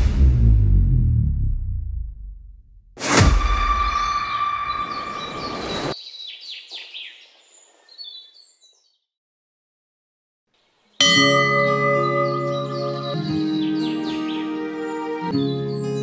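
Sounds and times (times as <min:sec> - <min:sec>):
ringing musical tone: 0:03.5 - 0:05.9, 0:11.0 - 0:14.6
birds chirping: 0:03.8 - 0:09.0, 0:10.6 - 0:16.0
soundtrack music with sustained chord: 0:11.1 - 0:16.0.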